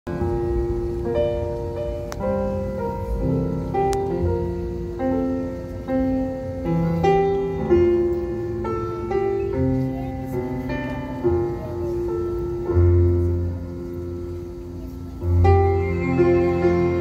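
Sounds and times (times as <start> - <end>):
grand piano: 0.1 - 17.0
string orchestra: 6.8 - 17.0.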